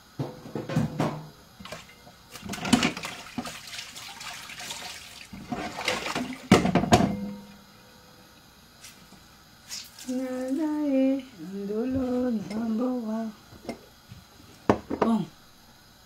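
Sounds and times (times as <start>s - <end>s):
water running and splashing: 1.6s - 6.8s, 9.6s - 10.6s.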